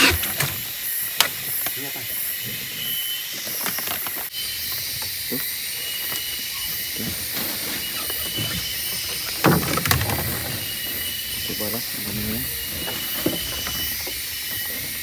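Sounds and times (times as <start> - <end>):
insect chorus hissing and whining: 0.0 - 15.0.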